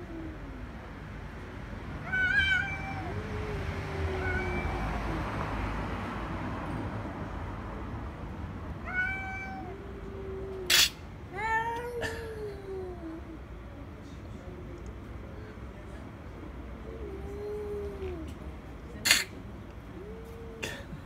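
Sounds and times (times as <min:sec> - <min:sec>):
cats yowling: 0:00.0 - 0:00.6, 0:02.0 - 0:05.4, 0:08.8 - 0:13.4, 0:16.8 - 0:18.3, 0:19.9 - 0:21.0
cat hissing: 0:02.1 - 0:05.4, 0:08.9 - 0:12.3, 0:19.0 - 0:21.0.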